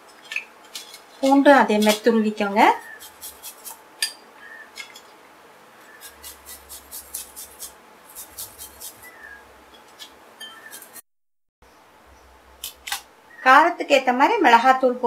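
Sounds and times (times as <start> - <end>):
garlic scraping on metal grater: 1.2 - 3.8, 5.8 - 9.4, 10.0 - 11.0.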